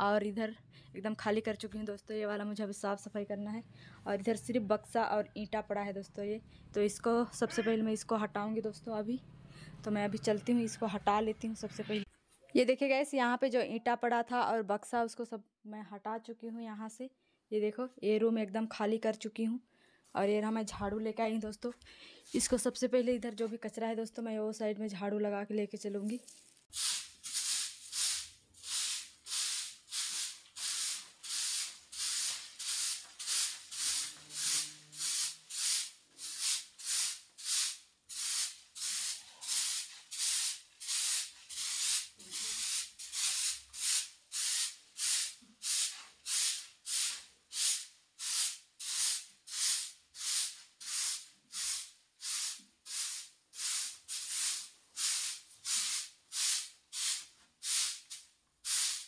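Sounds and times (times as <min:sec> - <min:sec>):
broom sweeping earthen floor: 0:26.2 - 0:59.0.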